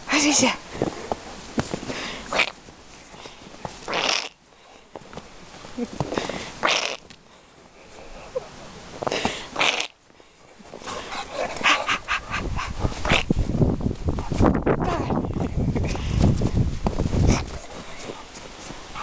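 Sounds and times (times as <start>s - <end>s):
dog breathy noises: 10.4s - 13.4s, 14.1s - 19.0s.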